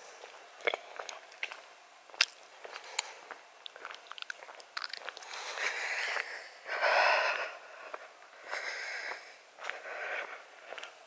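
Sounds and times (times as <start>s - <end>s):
heavy breathing: 5.2s - 11.0s.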